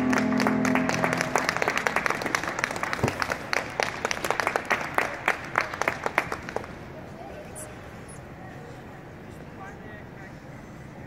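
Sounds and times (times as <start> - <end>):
audience clapping: 0.0 - 6.9.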